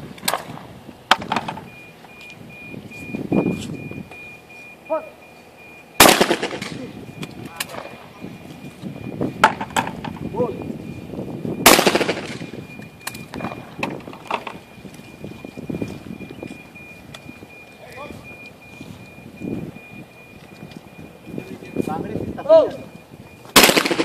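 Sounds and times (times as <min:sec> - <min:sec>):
loud shotgun shots echoing: 0:06.0 - 0:07.0, 0:11.6 - 0:12.5, 0:23.5 - 0:24.0.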